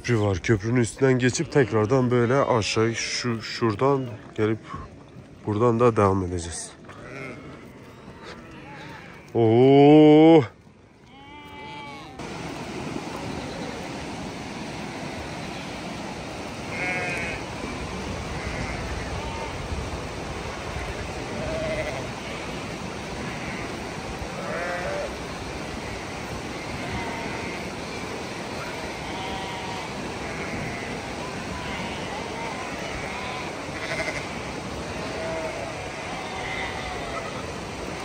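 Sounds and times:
sheep bleating: 6.8 - 9.7, 11.0 - 12.2, 16.6 - 17.5, 18.3 - 19.6, 20.7 - 22.6, 23.2 - 23.7, 24.4 - 25.2, 25.9 - 27.7, 28.6 - 37.4.

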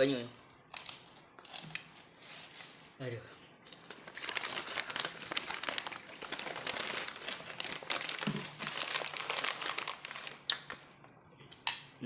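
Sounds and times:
paper crumpling: 3.7 - 10.8.

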